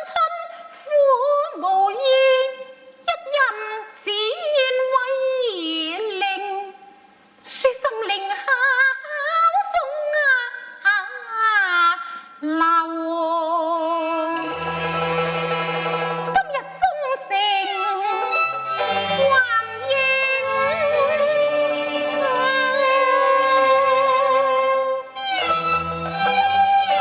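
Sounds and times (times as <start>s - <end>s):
bowed strings gliding melody: 14.4s - 16.4s, 17.6s - 27.0s.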